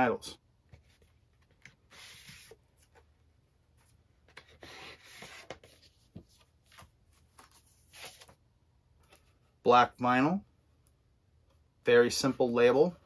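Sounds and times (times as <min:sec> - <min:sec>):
paper sleeves rustling and sliding: 0:00.7 - 0:03.1, 0:03.7 - 0:08.4.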